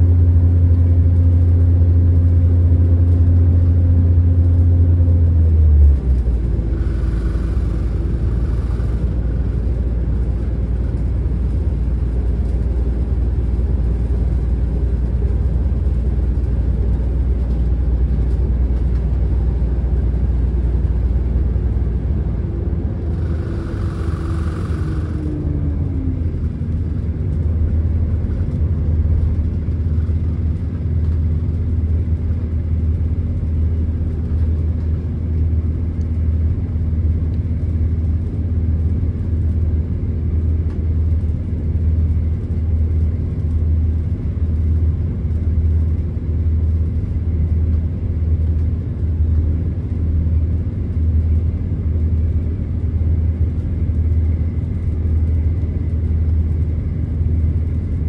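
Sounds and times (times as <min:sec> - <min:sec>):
diesel train engine rumble: 0:00.0 - 0:58.0
train wheels on track: 0:06.0 - 0:12.9, 0:23.0 - 0:25.8.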